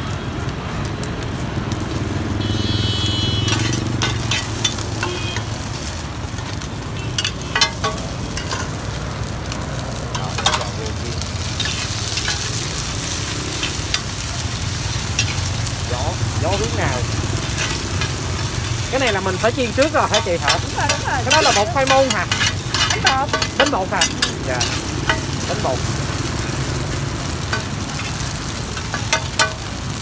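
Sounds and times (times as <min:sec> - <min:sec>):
cake sizzling in hot oil: 0:00.0 - 0:30.0
metal spatula scraping a pan: 0:03.5 - 0:05.5, 0:07.1 - 0:08.9, 0:10.2 - 0:15.8, 0:16.5 - 0:25.7.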